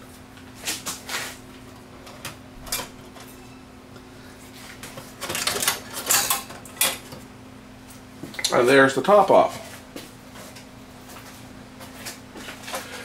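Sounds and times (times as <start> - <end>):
metal cover clattering: 2.6 - 3.3, 5.2 - 7.1.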